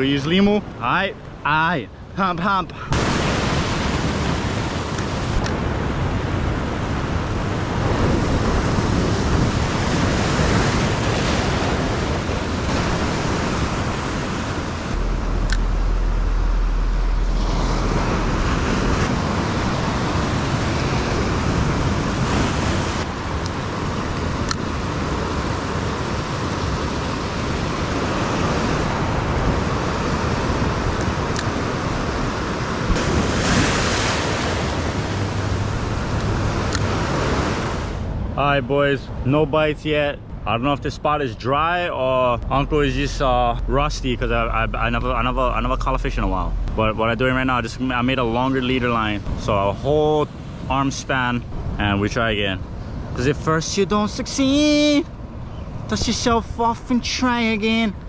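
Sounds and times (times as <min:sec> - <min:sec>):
ocean surf breaking on rocks: 0:00.0 - 0:39.3, 0:41.1 - 0:58.0
wind buffeting microphone: 0:02.9 - 0:38.4.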